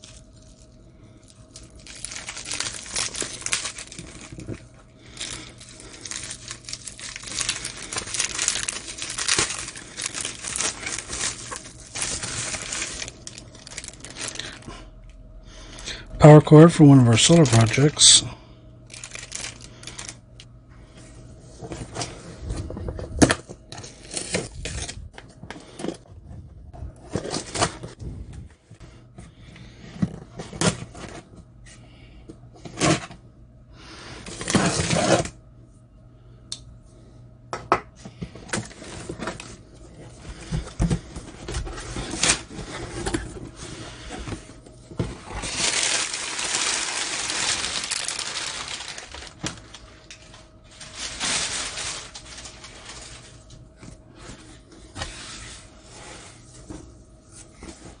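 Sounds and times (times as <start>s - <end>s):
cardboard scraping and rustling: 5.2s - 14.4s, 34.3s - 35.3s, 38.5s - 53.5s, 54.2s - 58.0s.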